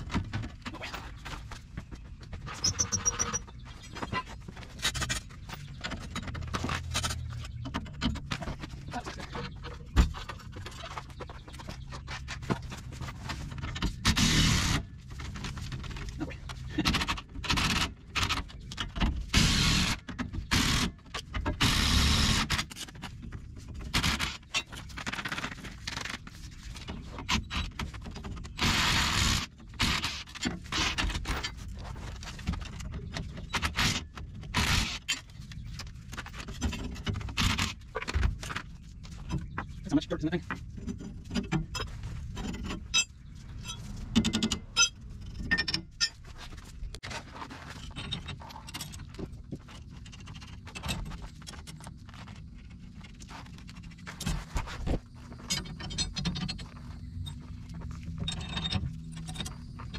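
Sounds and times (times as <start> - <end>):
metal tools scraping and clanking: 40.7 - 46.6, 47.3 - 51.3.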